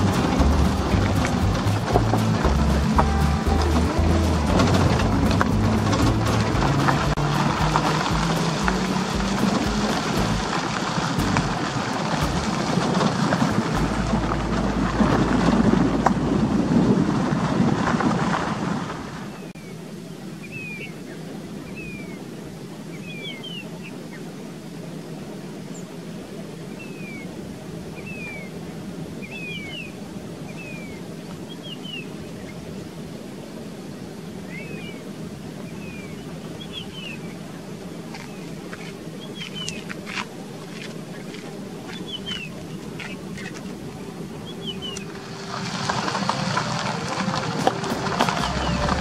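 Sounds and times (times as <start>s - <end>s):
wind rushing on microphone: 0.0s - 19.5s
bird gliding chirps: 34.4s - 37.4s, 41.1s - 45.7s.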